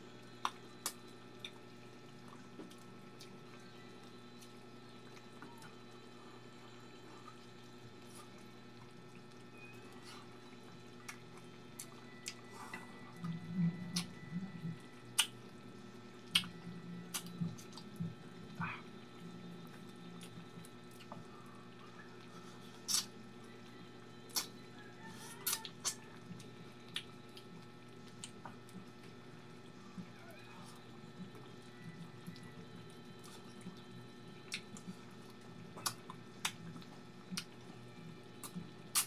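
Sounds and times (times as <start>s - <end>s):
faint steady hum: 0.0s - 39.0s
mouth clicks and lip smacks: 15.2s - 15.4s, 16.3s - 16.5s, 22.9s - 23.1s.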